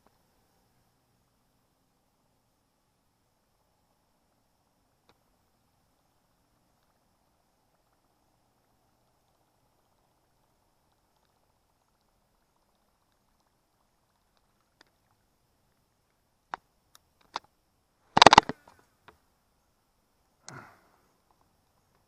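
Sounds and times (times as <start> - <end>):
clatter of rapid clicks: 18.2 - 18.6.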